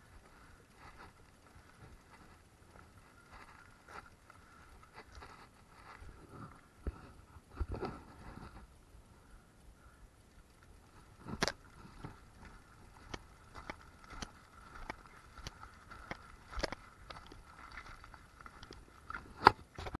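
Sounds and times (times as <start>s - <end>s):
bike rattling on gravel: 0.0s - 8.7s, 10.4s - 20.0s
bike jolts: 10.4s - 20.0s.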